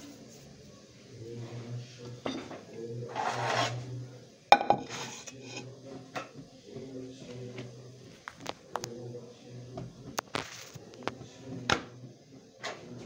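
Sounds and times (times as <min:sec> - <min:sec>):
pots and pans scraping and knocking: 0:02.2 - 0:03.9, 0:04.6 - 0:06.5
wok clanking on counter: 0:04.5 - 0:06.5.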